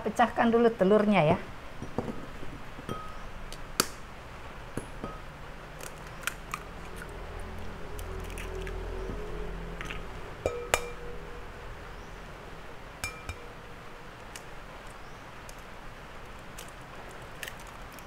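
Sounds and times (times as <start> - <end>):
glass ringing: 2.8 - 3.3, 4.8 - 5.3, 10.4 - 11.6, 13.0 - 13.8
eggs clinking on glass bowl: 9.8 - 11.3, 13.0 - 13.6.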